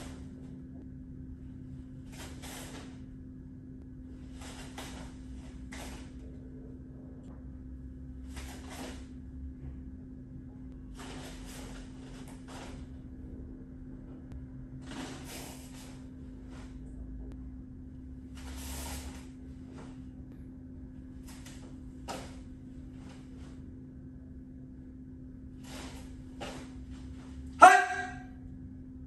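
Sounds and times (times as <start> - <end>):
steady low hum: 0.0 - 29.0
feet on foam mats: 1.9 - 3.1, 4.2 - 6.3, 8.2 - 9.2, 10.9 - 13.1, 14.8 - 16.9, 18.3 - 20.2, 21.0 - 23.7, 25.6 - 28.2
uniform swishes and rustles: 2.1 - 3.0, 4.2 - 6.2, 8.3 - 9.1, 11.0 - 13.0, 14.8 - 16.8, 18.3 - 20.1, 21.2 - 23.7, 25.6 - 27.5.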